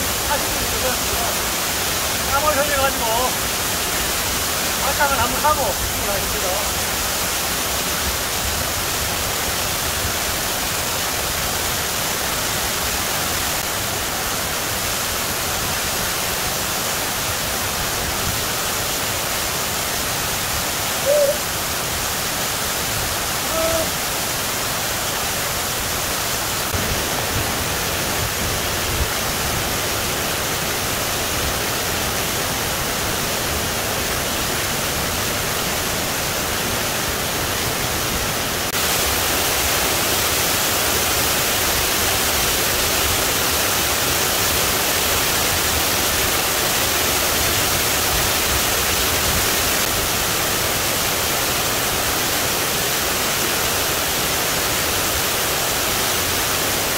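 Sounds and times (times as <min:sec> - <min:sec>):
waterfall rushing: 0:00.0 - 0:56.9
faint short calls: 0:21.0 - 0:21.5, 0:23.4 - 0:24.0.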